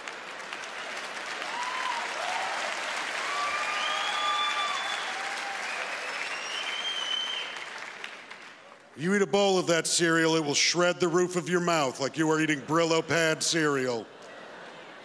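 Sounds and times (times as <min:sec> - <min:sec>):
audience applauding: 0:00.0 - 0:09.0
people whooping: 0:01.4 - 0:07.8.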